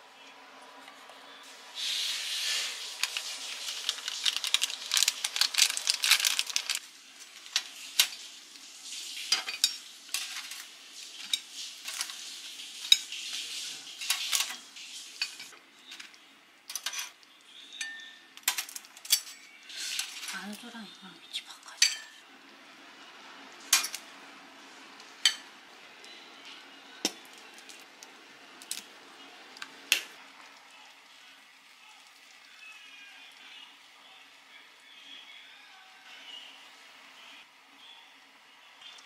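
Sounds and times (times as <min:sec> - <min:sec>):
rice cakes clattering into pan: 0:03.0 - 0:06.8, 0:09.3 - 0:12.2
tongs clicking on rack and plates: 0:17.8 - 0:19.4, 0:23.7 - 0:24.0.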